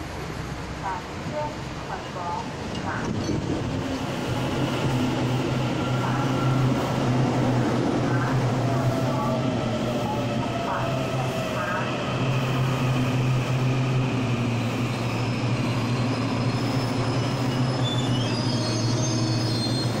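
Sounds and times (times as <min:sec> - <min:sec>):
electric train humming: 0:00.0 - 0:20.0.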